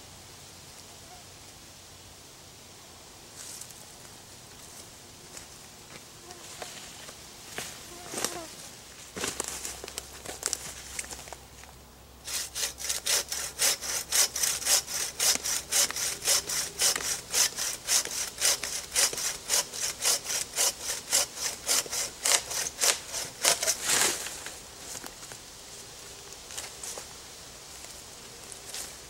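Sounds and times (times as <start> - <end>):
hand saw cutting wood: 12.2 - 24.4.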